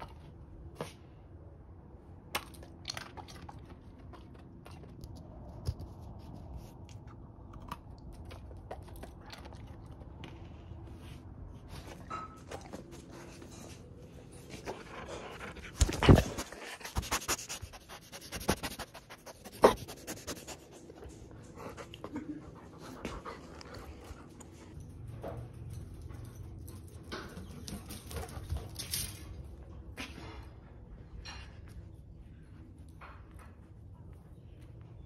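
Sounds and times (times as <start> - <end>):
dog panting: 12.8 - 24.8.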